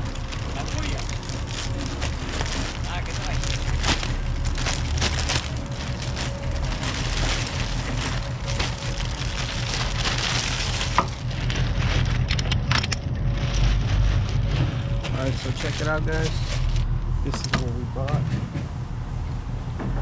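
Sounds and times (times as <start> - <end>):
plastic bag crinkling: 0.0 - 16.9.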